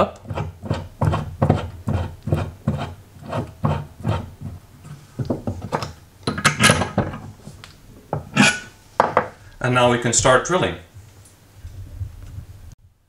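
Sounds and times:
vise screw handle scraping: 0.0s - 7.4s, 8.2s - 8.8s
metal clatter: 5.3s - 7.4s.

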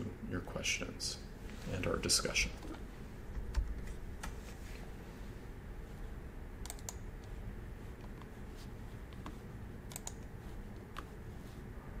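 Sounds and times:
low background hum: 0.0s - 12.0s
keyboard and mouse clicks: 6.6s - 7.4s, 9.1s - 11.1s.

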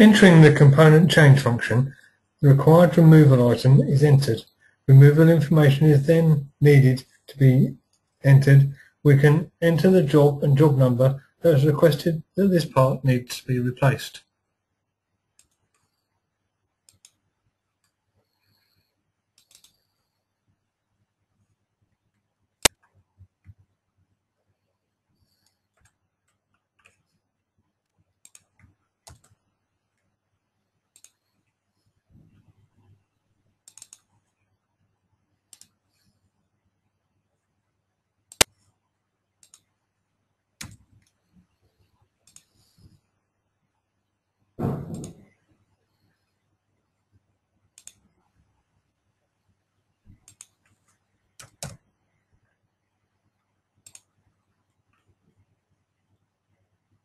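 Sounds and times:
computer mouse clicks: 15.4s - 16.1s, 16.8s - 17.2s, 17.8s - 20.2s, 25.3s - 27.2s, 27.8s - 30.1s, 30.9s - 31.5s, 33.6s - 34.4s, 35.5s - 36.1s, 38.3s - 38.7s, 39.4s - 39.7s, 40.6s - 42.9s, 44.8s - 45.3s, 47.7s - 48.1s, 50.1s - 51.9s, 53.8s - 54.2s
mouse and keyboard clicks: 19.4s - 19.9s, 28.2s - 29.4s, 30.9s - 31.4s, 33.6s - 34.2s, 39.4s - 39.7s, 42.2s - 42.6s, 44.8s - 45.2s, 47.8s - 48.0s, 50.1s - 51.8s, 53.8s - 54.1s.

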